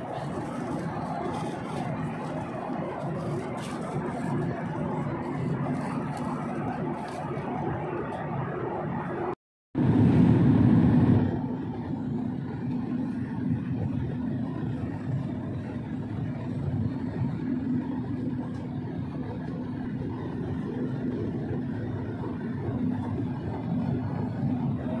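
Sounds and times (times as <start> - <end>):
airliner cabin drone: 0.0 - 25.0.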